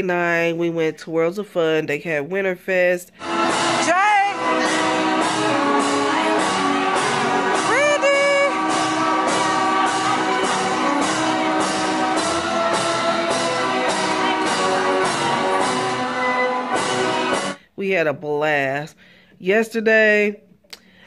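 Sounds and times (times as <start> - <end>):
music with steady beat: 3.2 - 17.6
person singing: 3.6 - 17.4.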